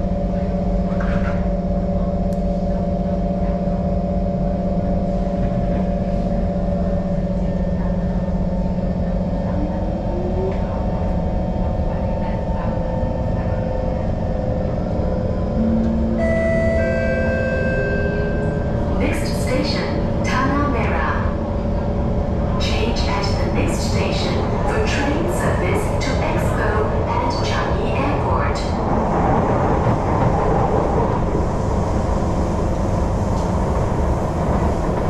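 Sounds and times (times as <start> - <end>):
train motor hum and whine: 14.6 - 35.0
higher whining tones: 15.6 - 19.1
wheel and rail rumble: 16.7 - 35.0.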